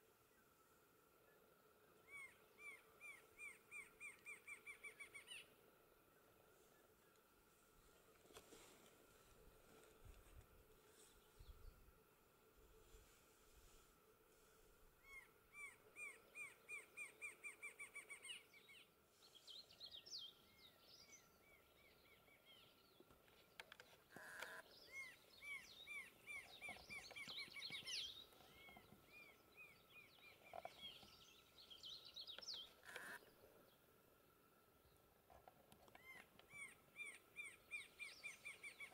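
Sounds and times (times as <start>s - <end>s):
high jumbled bird chirping: 24.8s - 32.8s, 36.0s - 38.9s.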